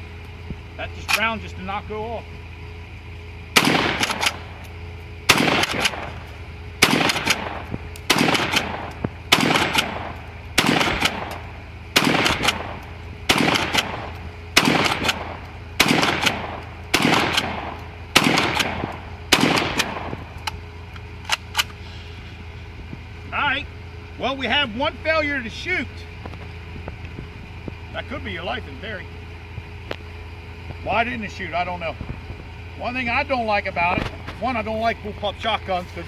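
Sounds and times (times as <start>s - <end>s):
shotgun shots: 3.6s - 4.6s, 5.3s - 20.3s.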